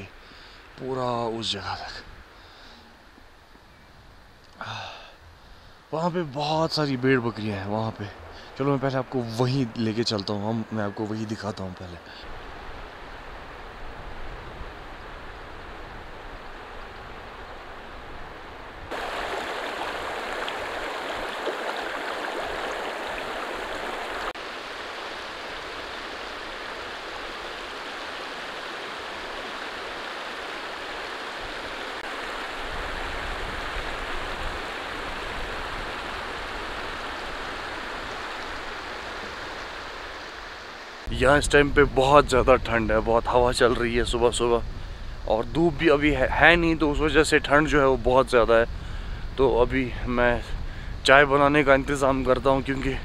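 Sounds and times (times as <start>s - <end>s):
stream rushing over rocks: 11.8s - 41.1s.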